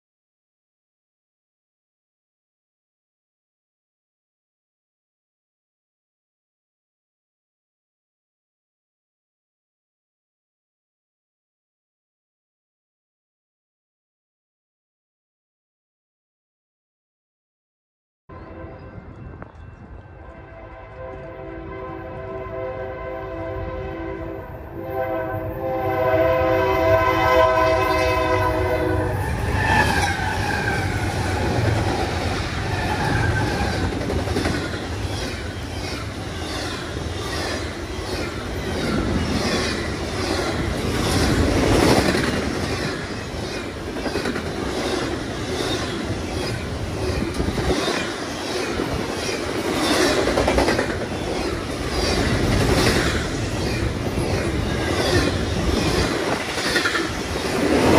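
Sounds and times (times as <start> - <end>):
locomotive horn chord: 18.3 - 19.3, 20.2 - 29.2
train rumble: 18.4 - 57.9.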